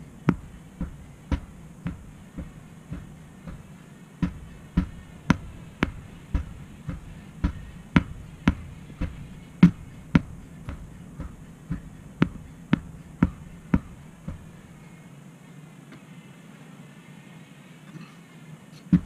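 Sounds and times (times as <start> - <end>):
hammer blows on rubber tire: 0.0 - 14.8.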